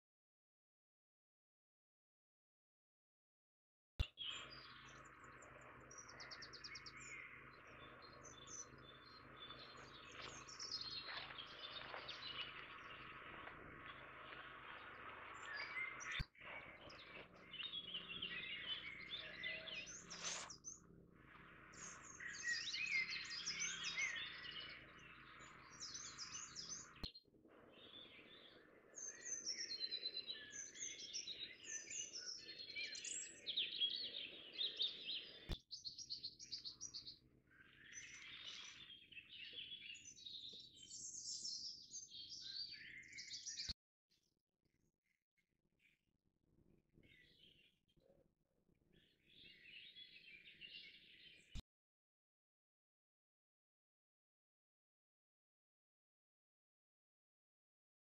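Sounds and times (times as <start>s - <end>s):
birds chirping and trilling: 4.0s - 43.8s, 47.0s - 48.2s, 48.8s - 51.6s.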